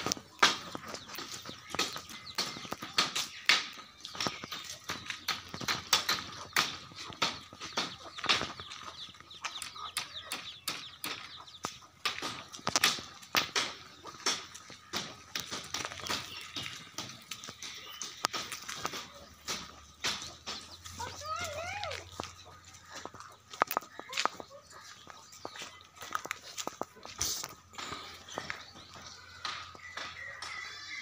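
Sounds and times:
birds chirping: 0.0 - 31.0.

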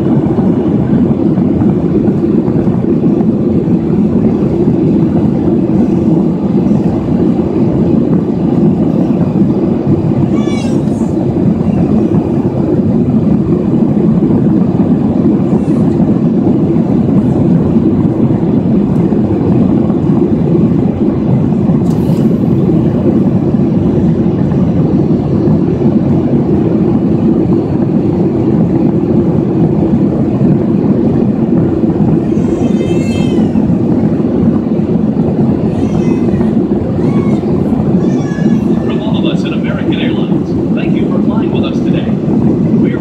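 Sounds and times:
airliner cabin engine roar: 0.0 - 43.0.

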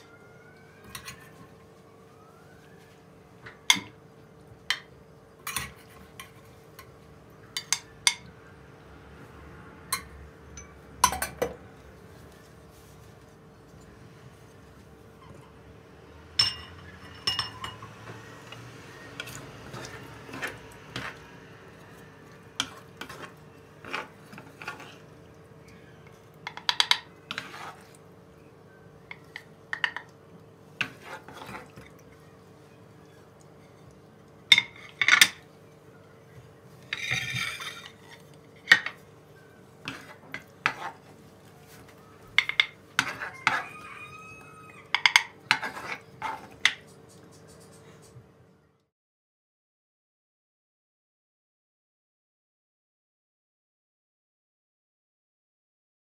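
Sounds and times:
cookware and utensils clinking: 0.8 - 1.4, 3.6 - 4.0, 4.7 - 8.3, 9.9 - 11.6, 16.3 - 21.3, 21.9 - 25.1, 26.4 - 28.0, 29.0 - 30.2, 30.8 - 32.2, 33.6 - 35.5, 36.8 - 39.1, 39.8 - 41.1, 41.7 - 46.9.

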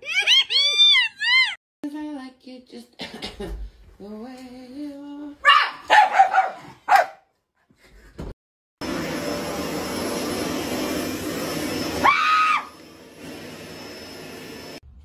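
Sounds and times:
woman screaming: 0.0 - 1.6, 12.0 - 12.7
vacuum cleaner whining: 8.8 - 14.8.

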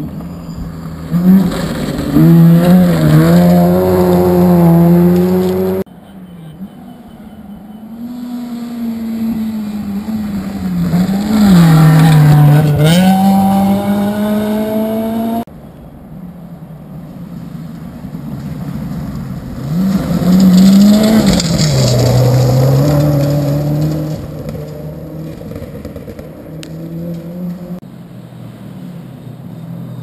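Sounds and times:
rally car engine revving: 0.0 - 5.9, 8.0 - 15.5, 19.6 - 27.8.

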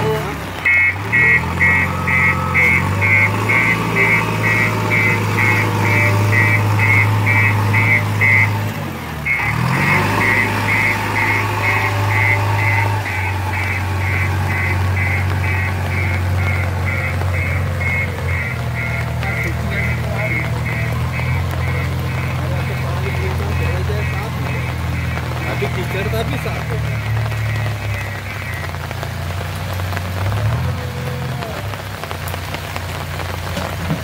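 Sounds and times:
diesel engine running: 0.0 - 34.0
electronic reversing beeps: 0.7 - 8.6, 9.3 - 28.8.

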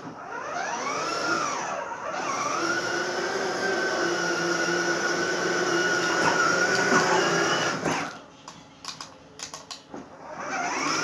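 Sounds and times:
toy car motor whining: 10.3 - 11.0.

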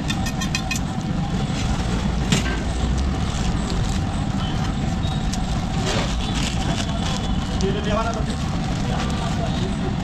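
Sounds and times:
low roadside rumble: 0.0 - 10.0.

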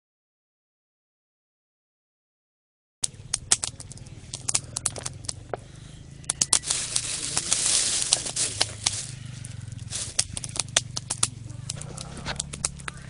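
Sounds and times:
wood fire crackling and popping: 3.0 - 13.0.

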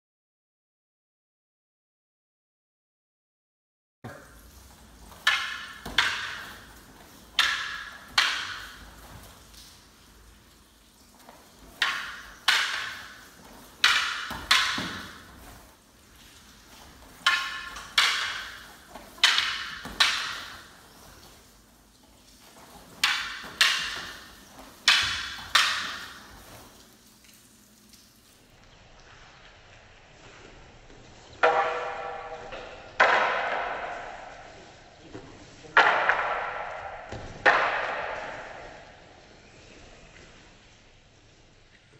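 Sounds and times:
wooden staffs clacking together: 4.1 - 27.5, 31.4 - 39.2.

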